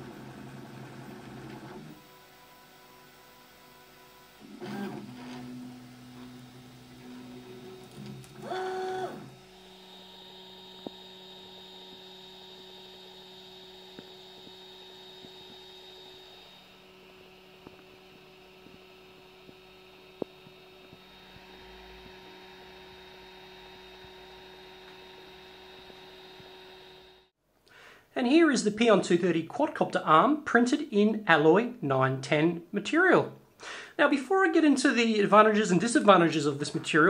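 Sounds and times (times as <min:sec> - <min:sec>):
stepper motors whining: 0:00.6 - 0:27.3
steady electrical hum: 0:01.9 - 0:27.3.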